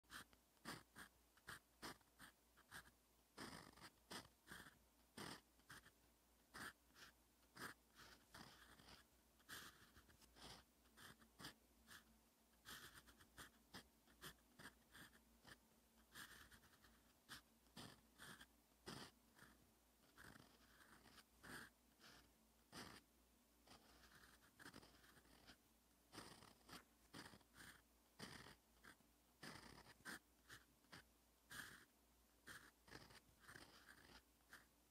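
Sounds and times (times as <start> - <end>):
pen nib scratching on paper: 0.0 - 34.9.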